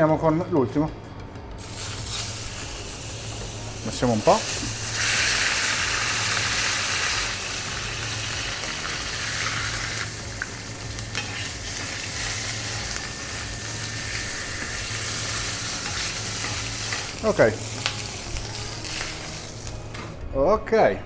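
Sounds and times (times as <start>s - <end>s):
chicken sizzling in hot oil: 1.6s - 19.8s.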